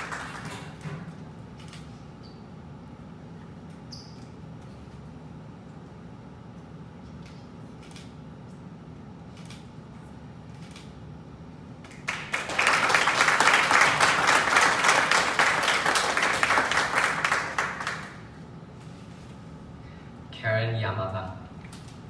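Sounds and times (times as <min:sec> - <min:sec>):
audience applauding: 0:00.0 - 0:00.8, 0:11.9 - 0:18.2.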